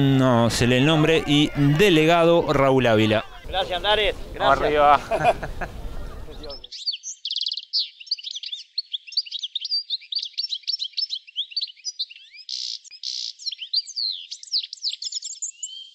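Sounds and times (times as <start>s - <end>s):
small birds chirping: 0.0s - 15.9s.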